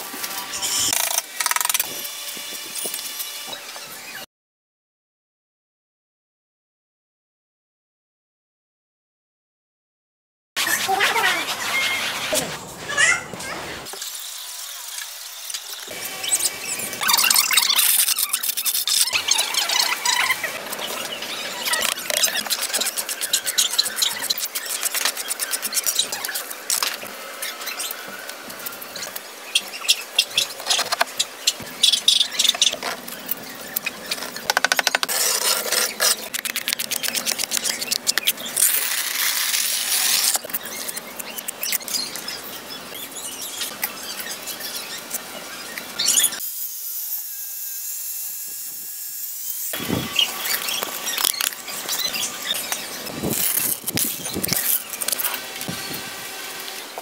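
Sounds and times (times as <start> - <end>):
trowel scraping mortar: 34.0 - 41.8, 49.7 - 56.0.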